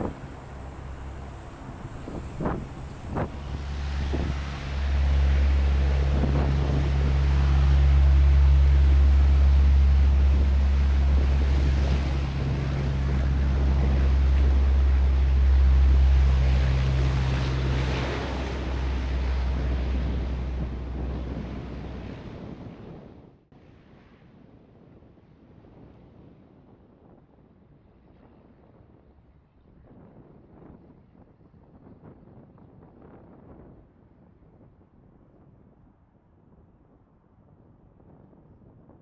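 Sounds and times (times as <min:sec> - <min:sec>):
turboprop aircraft droning: 0:00.0 - 0:23.1.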